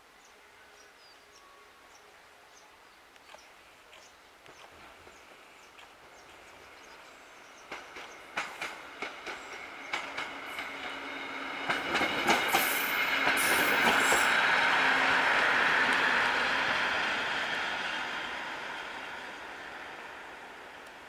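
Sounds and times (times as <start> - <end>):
rumbling rush of passing rail car: 4.6 - 21.0
wheels clacking over rail joints: 7.6 - 11.0, 11.6 - 14.3.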